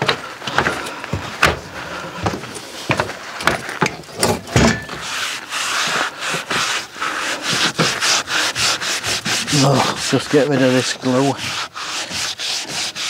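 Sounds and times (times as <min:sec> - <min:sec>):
hand sanding plywood: 0:04.9 - 0:13.0.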